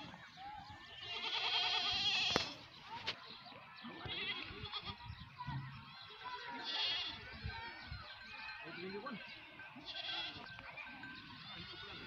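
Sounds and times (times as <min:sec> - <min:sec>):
goats bleating: 0:00.7 - 0:02.6, 0:03.9 - 0:05.0, 0:06.4 - 0:07.4, 0:09.8 - 0:10.6, 0:11.2 - 0:12.0.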